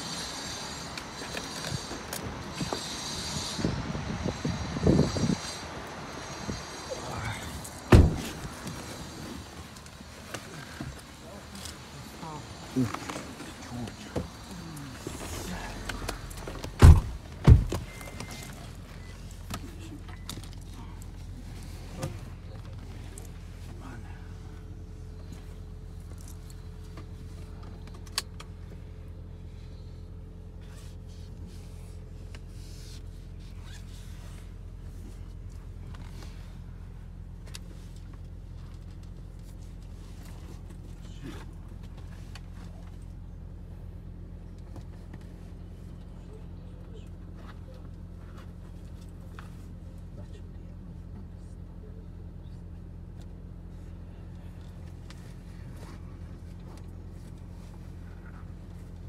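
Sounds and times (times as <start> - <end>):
car cabin rumble: 1.2 - 50.0
heavy thumps in car: 7.8 - 9.2, 12.9 - 18.2.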